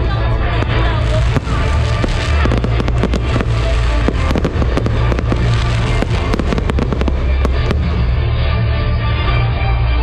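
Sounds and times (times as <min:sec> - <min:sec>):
music playing: 0:00.0 - 0:10.0
fireworks bursting and crackling: 0:00.5 - 0:08.4.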